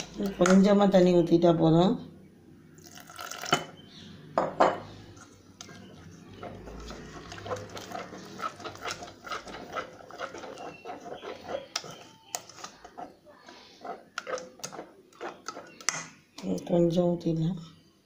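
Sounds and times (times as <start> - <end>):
whisk clicking against metal pan: 7.2 - 13.2.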